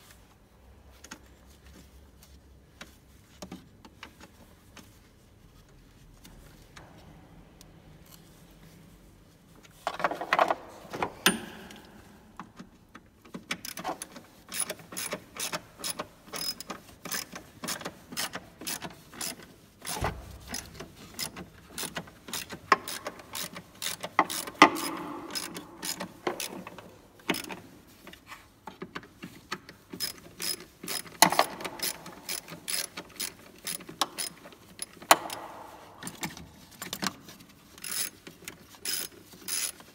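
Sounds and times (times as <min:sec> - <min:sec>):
knocks of tools and parts: 0:09.9 - 0:12.6, 0:24.2 - 0:27.5, 0:35.0 - 0:36.4
socket ratchet clicking: 0:13.5 - 0:27.6, 0:30.0 - 0:36.3, 0:38.9 - 0:39.8.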